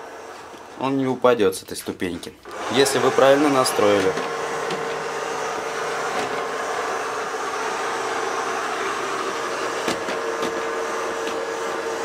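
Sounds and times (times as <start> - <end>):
robot vacuum whirring: 0.0 - 0.8, 2.5 - 12.0.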